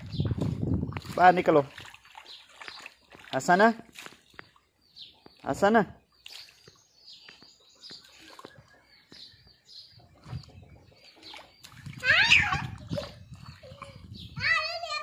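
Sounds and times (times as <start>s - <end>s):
birds chirping: 0.0s - 15.0s
child crying out: 12.1s - 12.8s.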